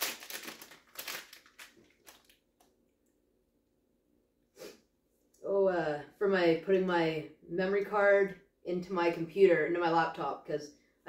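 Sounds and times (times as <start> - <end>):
packaging crinkling and tearing: 0.0 - 2.5.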